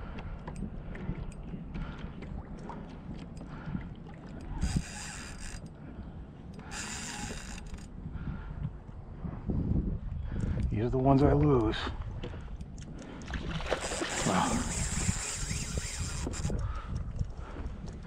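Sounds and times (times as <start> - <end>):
wind and water rumble: 0.0 - 18.0
fishing reel drag screaming: 4.6 - 5.6, 6.7 - 7.9, 13.8 - 16.6.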